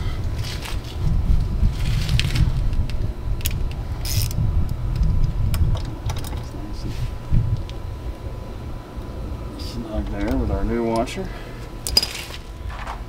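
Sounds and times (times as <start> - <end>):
low rumble: 0.0 - 10.8
metal parts clinking: 11.8 - 13.0.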